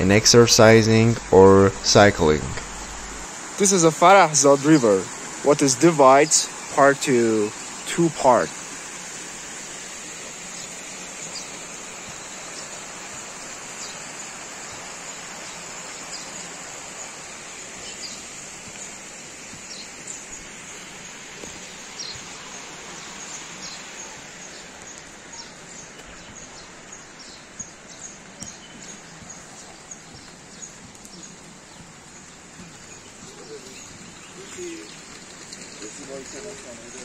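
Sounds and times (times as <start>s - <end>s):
river water rushing down a channel: 0.0s - 25.8s
small birds chirping: 0.0s - 37.0s.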